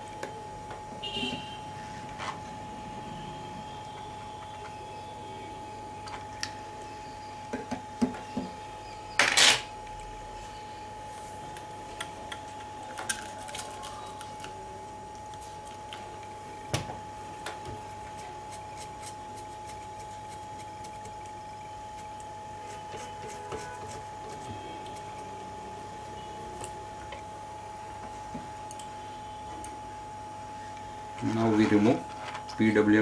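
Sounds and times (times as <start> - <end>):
electrical hum with high whine: 0.0 - 33.0.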